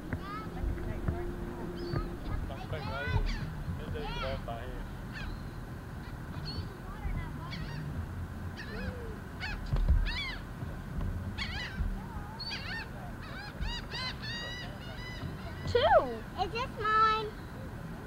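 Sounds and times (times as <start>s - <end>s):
birds honking: 0.0s - 10.6s, 11.2s - 17.5s.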